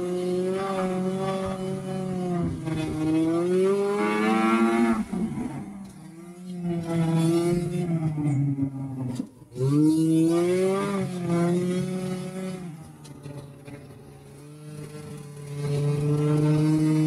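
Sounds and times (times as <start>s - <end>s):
snowmobile engine revving: 0.0s - 5.8s, 9.5s - 17.0s.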